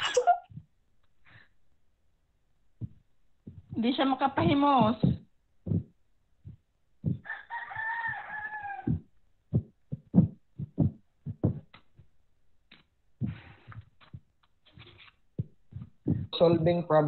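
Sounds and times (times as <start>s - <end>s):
rooster crowing: 7.2s - 9.1s.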